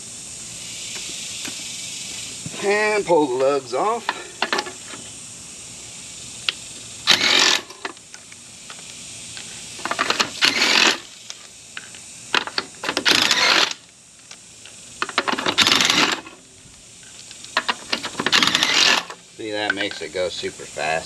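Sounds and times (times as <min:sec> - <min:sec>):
impact driver spinning lug nuts: 0:07.0 - 0:07.9, 0:09.8 - 0:11.1, 0:12.4 - 0:13.8, 0:15.0 - 0:16.4, 0:17.6 - 0:19.2.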